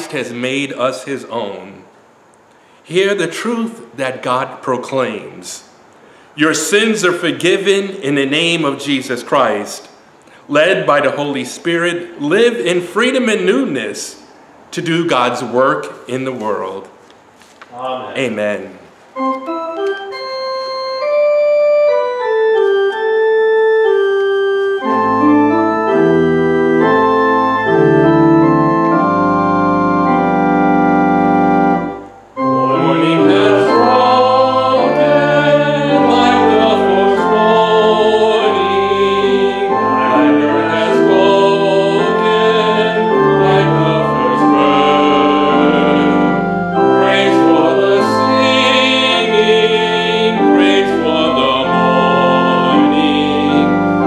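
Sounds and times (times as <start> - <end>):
church organ playing hymn: 2.9 - 9.8, 19.1 - 54.0
people singing: 32.6 - 54.0.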